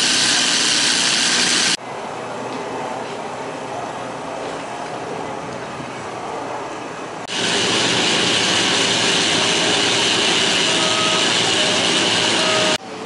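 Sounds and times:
power cutting tool whining: 0.0s - 1.8s, 7.3s - 12.8s.

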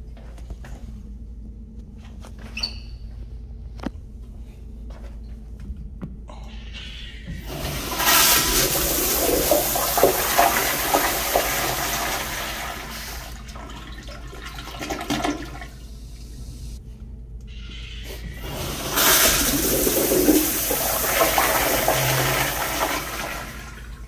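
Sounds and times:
toilet flushing: 6.9s - 16.8s, 17.5s - 24.0s.

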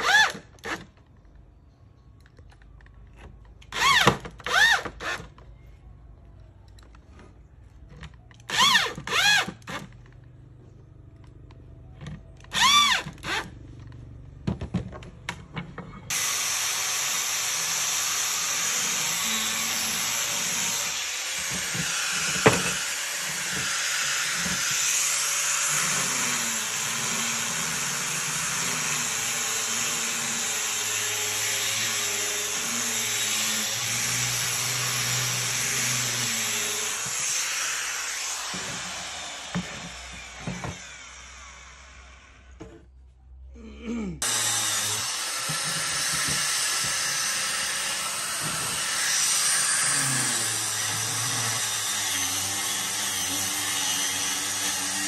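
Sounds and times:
cordless drill boring into wood: 3.7s - 5.2s, 8.5s - 9.9s, 12.5s - 13.5s, 16.1s - 42.4s, 44.2s - 55.0s.

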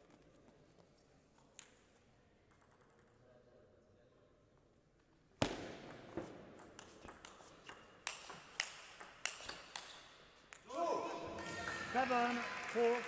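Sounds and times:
ping pong ball clicks: 6.6s - 10.6s.

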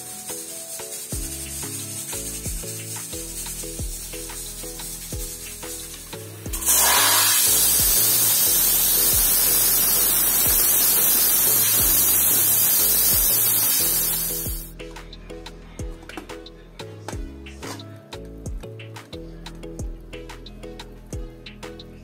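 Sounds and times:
pressure cooker steam hissing: 0.0s - 14.7s.

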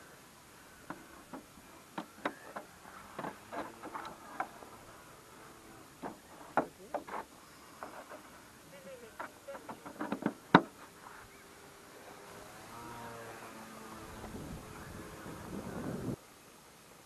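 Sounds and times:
light clicks and knocks: 9.1s - 10.8s.

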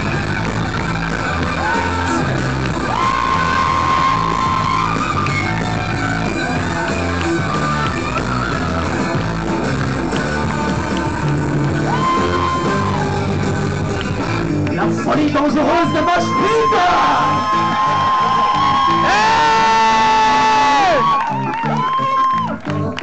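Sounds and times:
loud rock music with vocals: 0.0s - 23.0s.

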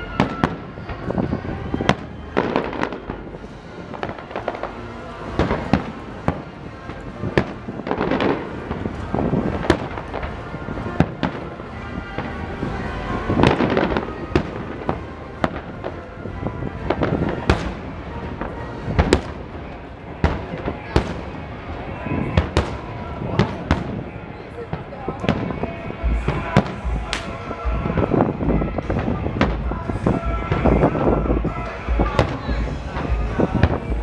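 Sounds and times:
fireworks bursting with echoing booms: 0.0s - 34.0s.

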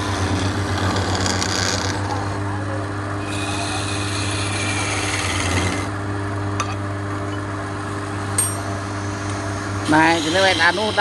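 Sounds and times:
chisel rasping on spinning wood: 0.0s - 2.5s, 3.2s - 5.9s, 9.8s - 11.0s
wood lathe motor hum: 0.0s - 6.0s, 9.8s - 11.0s.

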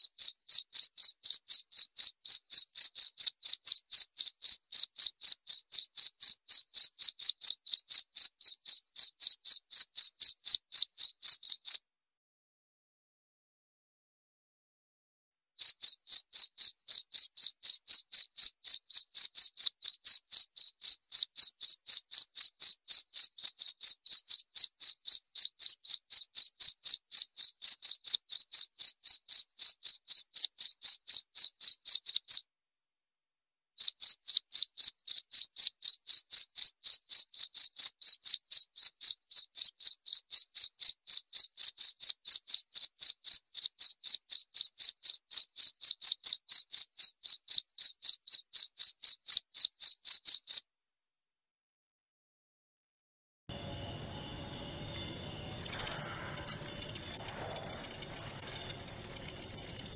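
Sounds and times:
cricket chirping: 0.0s - 11.8s, 15.6s - 32.4s, 33.8s - 50.6s, 53.5s - 59.9s.

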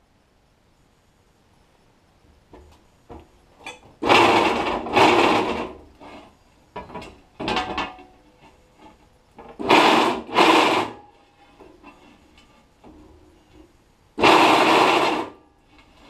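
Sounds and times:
harsh metal scraping from drill press: 4.0s - 6.4s, 9.5s - 12.6s, 14.2s - 16.0s.

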